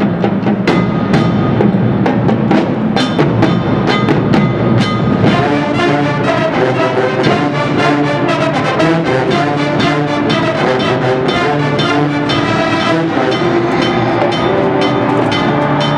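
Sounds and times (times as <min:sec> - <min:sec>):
marching drumline hits: 0:00.0 - 0:15.9
brass section sustained chords: 0:05.2 - 0:15.9.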